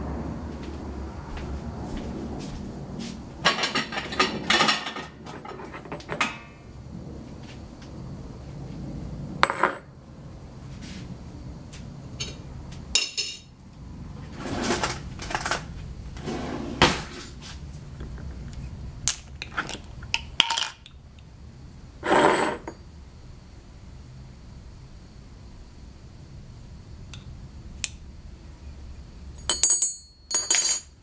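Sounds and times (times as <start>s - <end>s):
ceramic and glass knocks and clinks: 29.5s - 30.9s.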